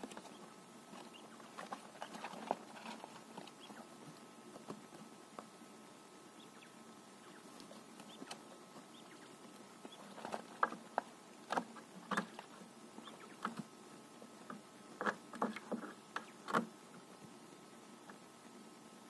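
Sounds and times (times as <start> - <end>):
quail rustling in straw: 0.0 - 18.8
quail pecking taps: 4.5 - 5.5, 6.5 - 13.7, 14.4 - 16.7.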